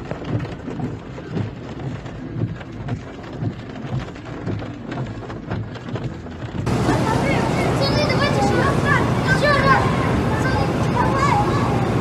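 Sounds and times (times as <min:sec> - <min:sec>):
heavy rain hissing: 0:06.7 - 0:12.0.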